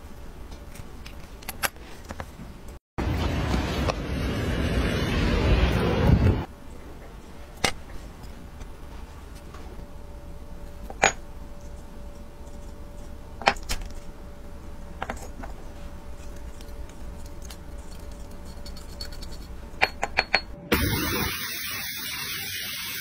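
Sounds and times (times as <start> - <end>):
ultrasonic cleaner hissing: 20.7 - 23.0.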